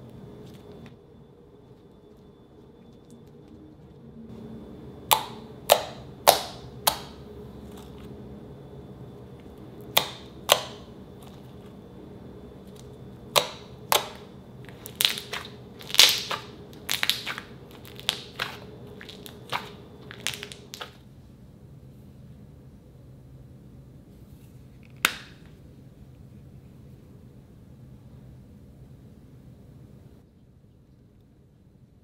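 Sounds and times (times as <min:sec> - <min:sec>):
fingers squeezing slime: 0:05.1 - 0:08.0, 0:09.9 - 0:11.6, 0:12.7 - 0:21.0
air pockets popping in slime: 0:09.9 - 0:11.4, 0:12.7 - 0:21.0.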